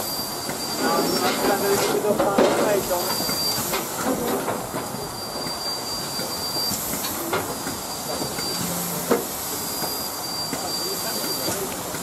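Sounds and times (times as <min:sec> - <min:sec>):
thin high whistle-like tone: 0:00.0 - 0:01.8, 0:03.0 - 0:03.8, 0:05.0 - 0:08.7, 0:09.5 - 0:11.7
steam hissing: 0:00.0 - 0:12.0.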